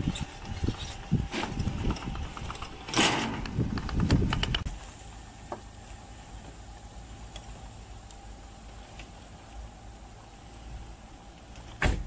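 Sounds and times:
rubber tracks knocking on metal ramps: 1.4s - 4.7s.

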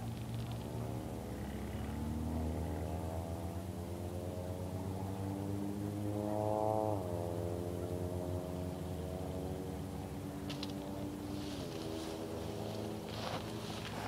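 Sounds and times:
engine accelerating: 0.0s - 14.0s
steady low hum: 7.0s - 14.0s.

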